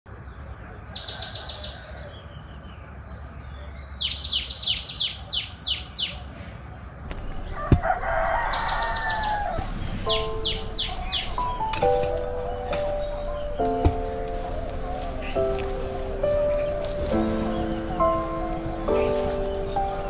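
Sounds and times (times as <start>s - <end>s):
small birds chirping: 0.1s - 20.0s
rooster crowing: 0.7s - 2.1s, 7.4s - 11.6s
music with steady notes: 9.6s - 20.0s.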